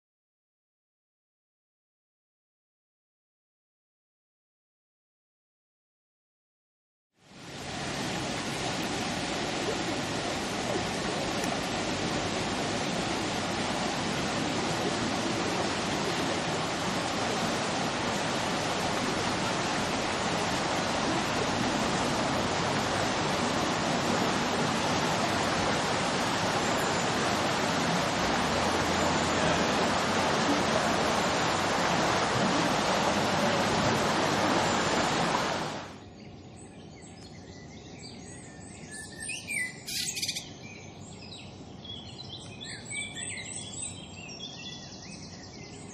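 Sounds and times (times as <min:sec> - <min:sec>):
water rushing: 0:07.2 - 0:36.0
birds chirping: 0:32.8 - 0:45.9.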